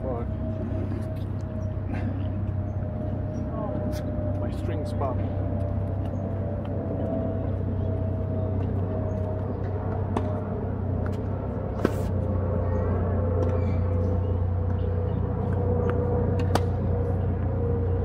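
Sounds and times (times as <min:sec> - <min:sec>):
steady low hum: 0:00.0 - 0:18.0
rackets striking tennis balls: 0:08.6 - 0:17.6.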